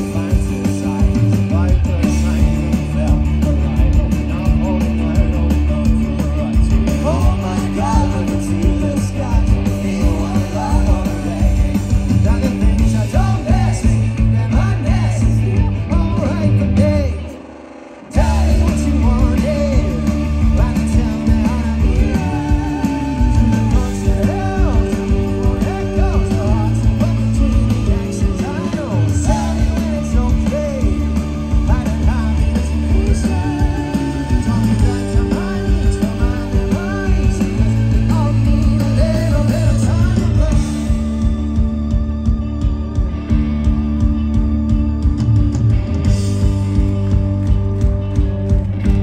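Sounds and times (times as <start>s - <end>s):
man singing: 0.0s - 17.4s, 18.2s - 41.3s
bass: 0.0s - 49.0s
drums: 0.0s - 49.0s
electric guitars: 0.0s - 49.0s
rock band playing live: 0.0s - 49.0s.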